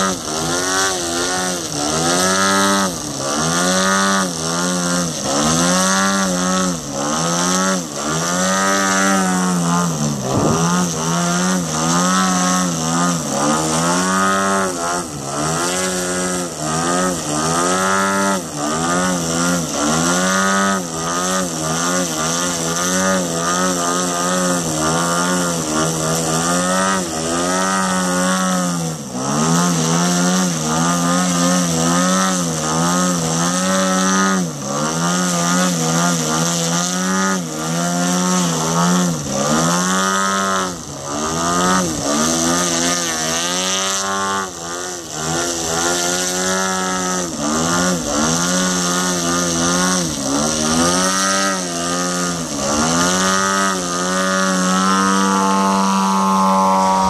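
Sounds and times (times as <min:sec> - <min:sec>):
model airplane engine and propeller: 0:00.0 - 0:57.0.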